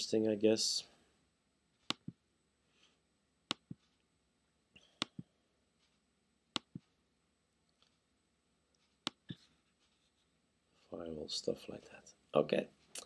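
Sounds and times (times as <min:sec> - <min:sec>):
computer mouse clicks: 0:04.9 - 0:05.2, 0:06.6 - 0:06.9, 0:08.8 - 0:09.4.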